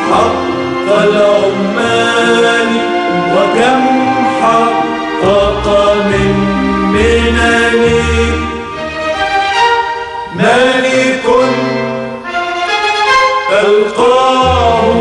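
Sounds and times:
choir singing: 0:00.0 - 0:08.6
instrumental backing: 0:00.0 - 0:15.0
deep bass notes: 0:05.2 - 0:09.1.

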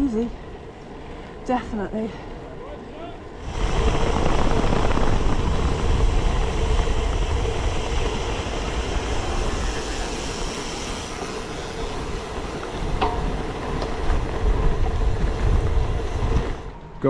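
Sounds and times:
road tyres humming: 0:00.0 - 0:17.0
wind on microphone: 0:03.4 - 0:17.0.

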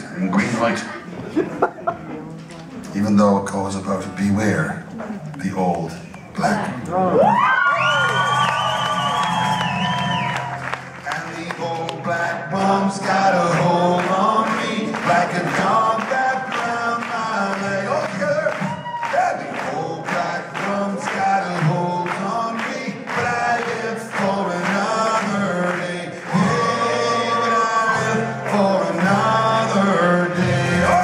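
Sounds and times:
strummed acoustic guitar: 0:09.6 - 0:31.0
man singing: 0:11.0 - 0:31.0.

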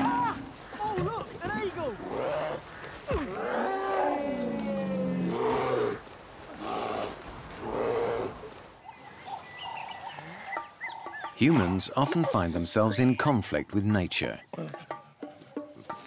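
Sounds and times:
bears roaring: 0:01.9 - 0:08.7.

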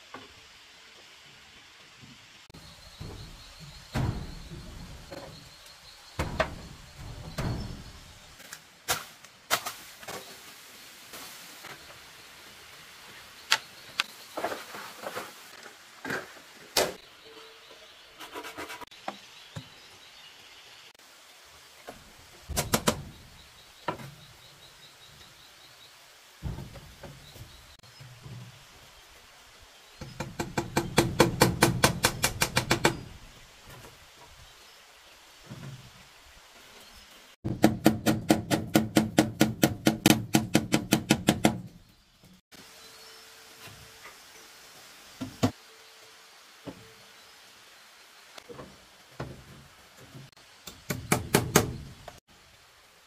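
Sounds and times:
dull thuds: 0:02.6 - 0:08.4, 0:26.4 - 0:27.8.

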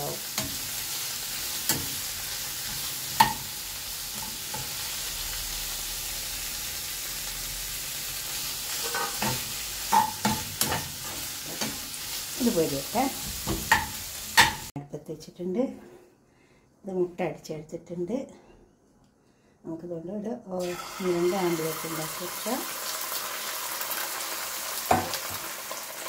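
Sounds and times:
food sizzling in a frying pan: 0:00.0 - 0:14.7, 0:20.6 - 0:26.0
spoon scraping and clattering: 0:08.8 - 0:10.9.

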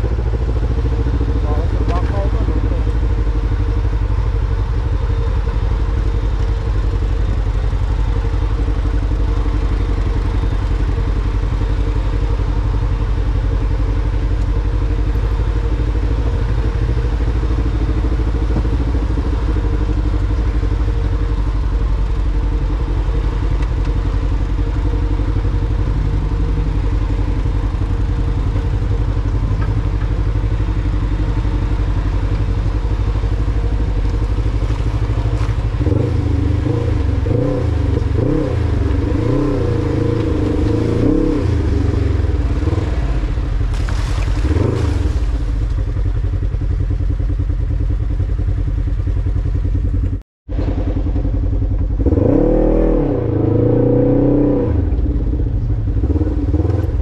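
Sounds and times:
engine revving: 0:00.0 - 0:03.0, 0:24.8 - 0:45.4, 0:50.5 - 0:57.0
off-road vehicle engine running: 0:00.0 - 0:57.0.

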